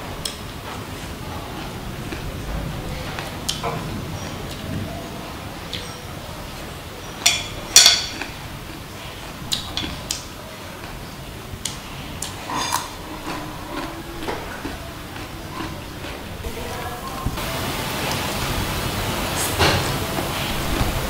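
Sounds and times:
chopsticks clinking on ceramic plate: 7.2s - 8.4s.

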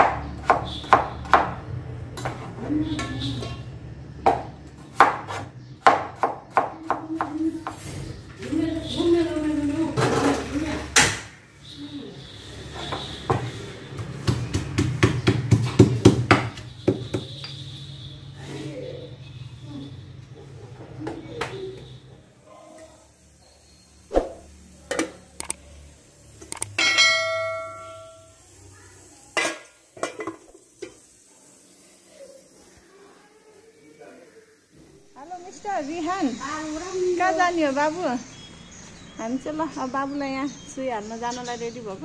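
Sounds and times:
knife chopping on cutting board: 0.0s - 1.6s
metal vessel clanging: 26.8s - 28.3s
metal utensils clattering: 29.4s - 30.5s.

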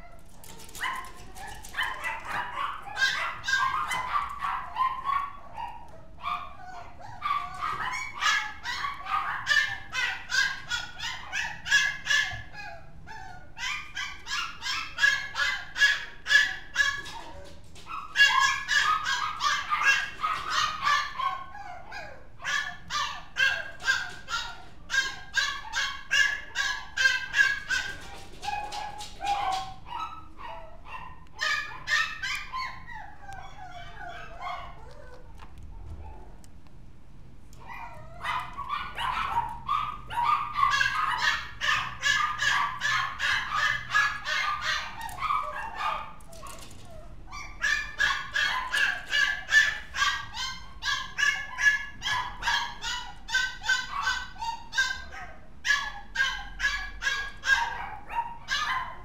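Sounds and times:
small dog yapping: 0.0s - 36.4s, 37.6s - 59.0s.

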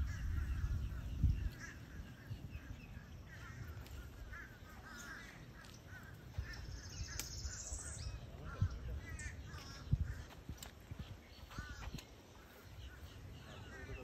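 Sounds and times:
high bird trill: 0.0s - 14.0s
wild birds calling: 0.0s - 14.0s.

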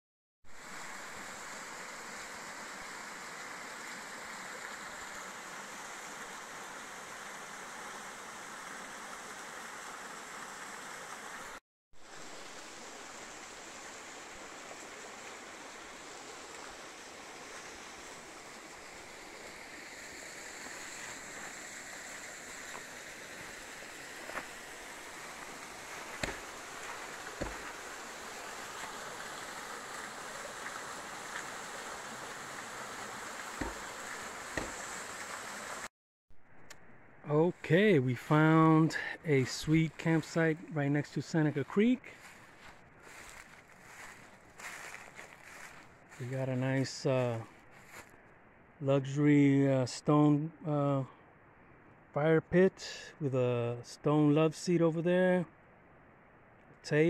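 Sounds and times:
water rushing over rocks: 0.6s - 35.9s
short knocks: 33.6s - 33.9s.

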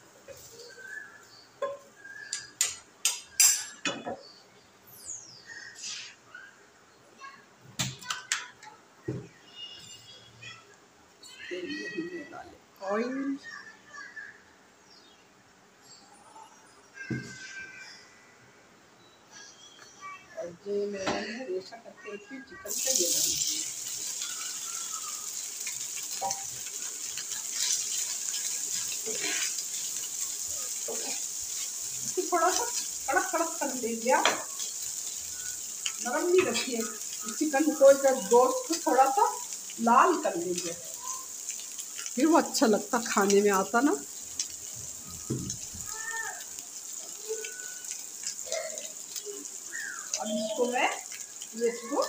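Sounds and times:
chicken sizzling in a pan: 0.0s - 3.8s, 22.6s - 52.0s.

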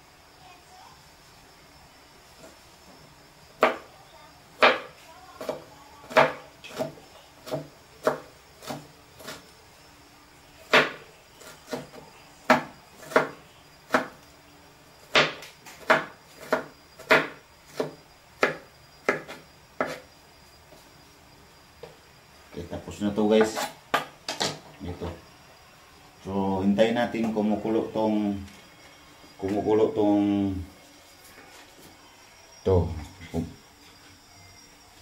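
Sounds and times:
knife chopping on plastic board: 3.6s - 3.8s, 4.6s - 9.4s, 10.7s - 11.0s, 11.7s - 13.3s, 15.1s - 20.0s.

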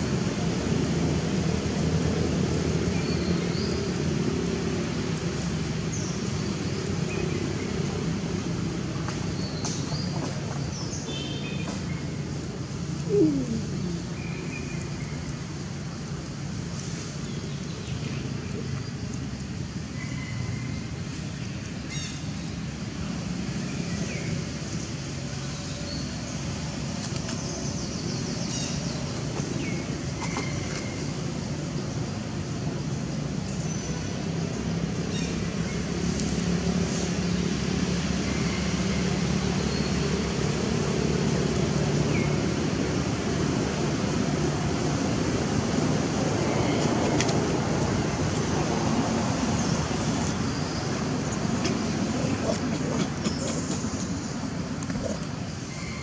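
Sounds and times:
low outdoor rumble: 11.6s - 19.5s, 30.9s - 56.0s.

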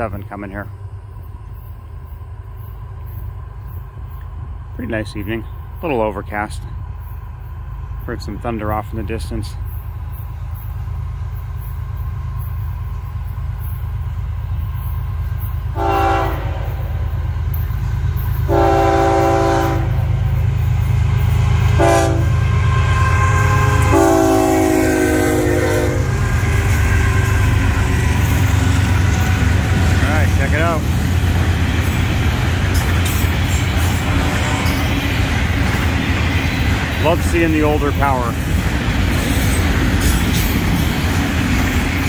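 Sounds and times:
diesel locomotives rumbling: 0.0s - 42.0s
train air horn blasts: 15.7s - 17.1s, 18.4s - 20.2s, 21.6s - 30.0s.

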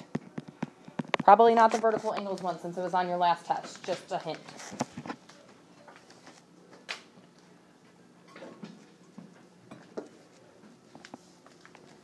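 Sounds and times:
faint clicks and taps: 0.0s - 2.5s.

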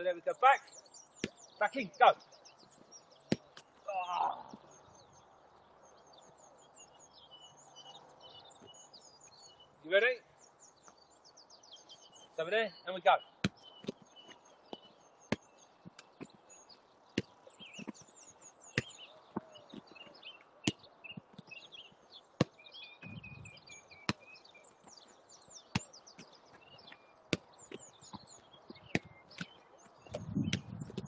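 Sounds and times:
birds chirping: 0.0s - 31.0s
football being kicked: 3.3s - 3.6s, 13.4s - 14.0s, 14.7s - 15.6s, 17.2s - 21.6s, 22.4s - 23.4s, 24.0s - 24.3s, 25.6s - 31.0s.

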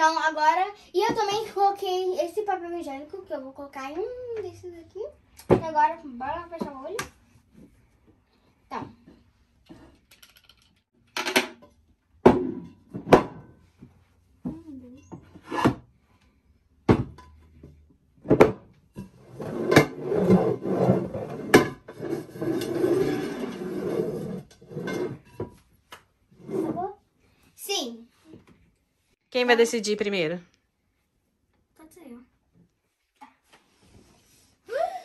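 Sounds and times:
bowls scraping on table: 15.0s - 15.9s, 19.0s - 25.6s, 26.3s - 27.0s.

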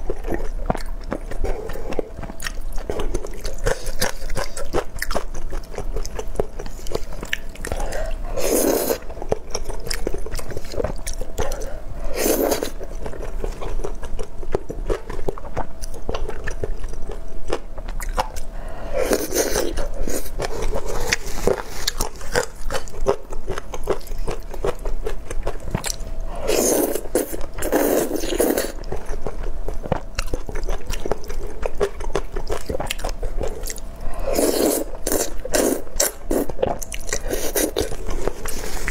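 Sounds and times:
slurping noodles: 7.8s - 9.0s, 12.0s - 12.8s, 26.3s - 28.8s, 34.1s - 36.5s.

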